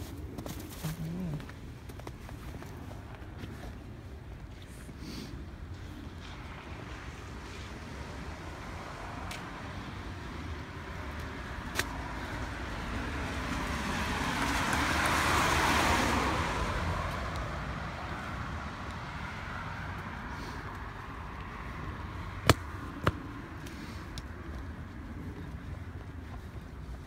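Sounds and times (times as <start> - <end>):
car passing by: 5.7 - 22.4.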